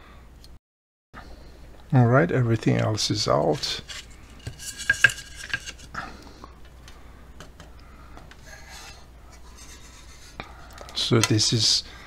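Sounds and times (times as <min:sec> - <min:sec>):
faint handling noise: 0:03.2 - 0:10.0.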